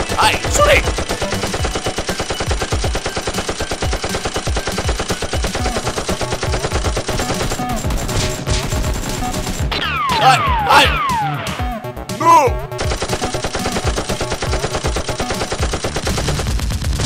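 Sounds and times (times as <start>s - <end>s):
rapid automatic gunfire: 0.0s - 10.1s, 12.8s - 17.0s
toy blasters firing: 0.0s - 11.4s.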